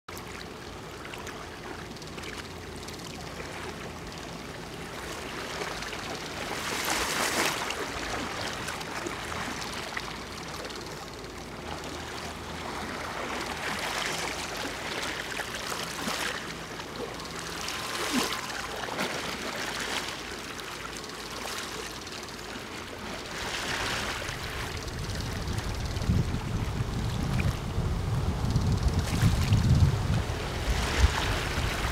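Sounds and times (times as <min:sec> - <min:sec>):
rushing water: 0:11.4 - 0:31.9.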